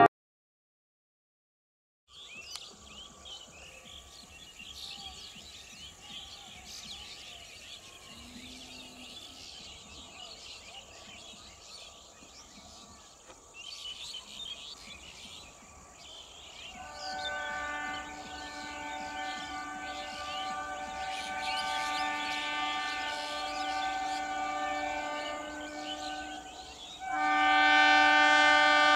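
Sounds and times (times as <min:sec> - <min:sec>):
small birds chirping: 0:02.1 - 0:27.2.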